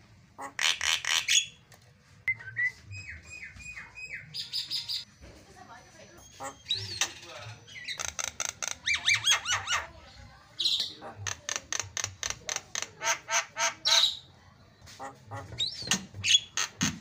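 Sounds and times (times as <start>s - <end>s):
bird harsh chattering: 0.4s - 1.6s, 6.2s - 10.0s, 10.6s - 14.3s, 15.0s - 16.9s.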